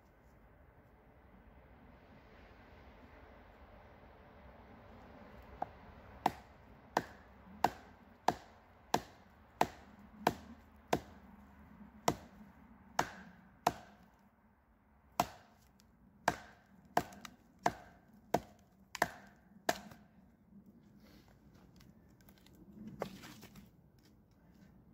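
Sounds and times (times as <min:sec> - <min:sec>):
hatchet chopping wood: 0:05.6 - 0:11.2, 0:12.0 - 0:12.4, 0:13.0 - 0:14.1, 0:15.2 - 0:20.0.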